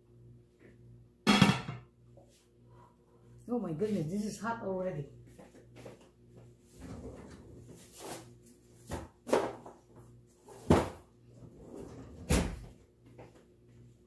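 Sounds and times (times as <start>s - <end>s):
drawers and cupboard doors banging: 10.5s - 12.7s.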